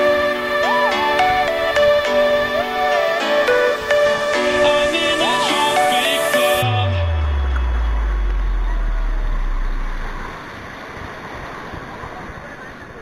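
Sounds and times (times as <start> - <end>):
deep falling electronic bass note: 6.6 - 10.5.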